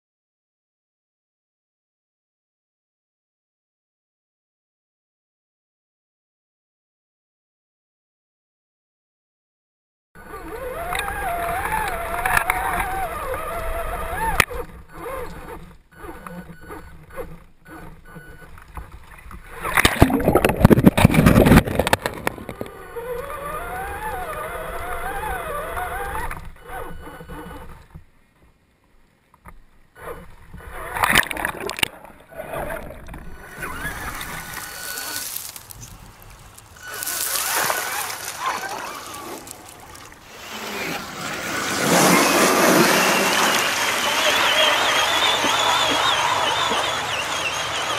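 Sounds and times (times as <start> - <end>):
water churning and splashing: 19.6 - 22.8, 31.0 - 44.0.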